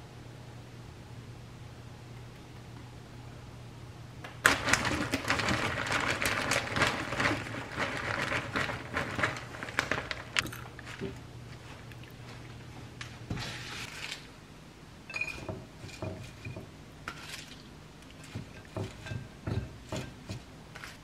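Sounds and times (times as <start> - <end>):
plastic bag crinkling: 4.4 - 11.1
salad leaves rustling: 5.0 - 14.3.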